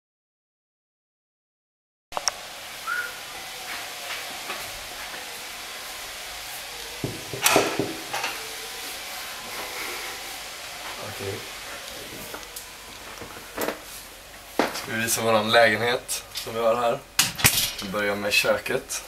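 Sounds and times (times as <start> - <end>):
faint hiss: 2.2 - 19.0
knuckles knocking on wooden door: 7.0 - 8.1.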